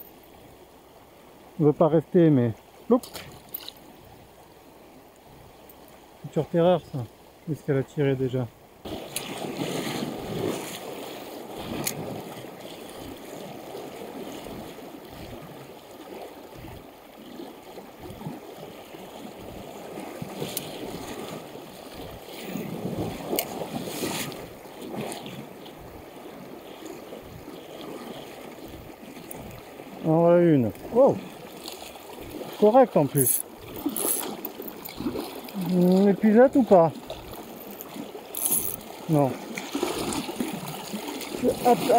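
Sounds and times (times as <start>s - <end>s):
river water rushing over stones: 8.8s - 41.9s.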